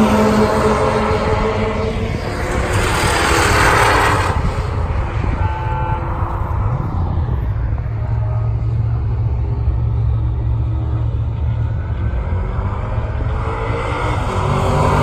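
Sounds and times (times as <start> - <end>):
race car passing at speed: 0.0 - 5.4, 12.0 - 15.0
low engine rumble: 0.0 - 14.6.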